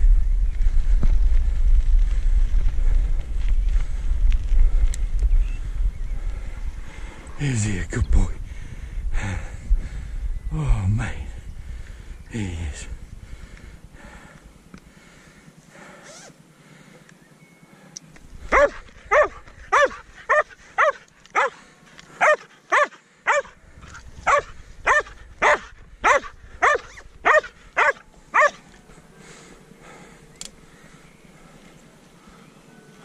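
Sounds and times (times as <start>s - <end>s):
dog barking: 18.5s - 21.6s, 22.2s - 23.6s, 24.2s - 28.6s.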